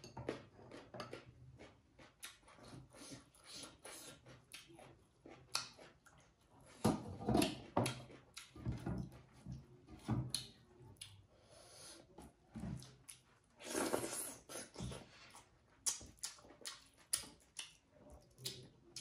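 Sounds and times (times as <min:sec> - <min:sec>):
wet chewing and lip smacks: 0:00.7 - 0:06.4, 0:15.3 - 0:19.0.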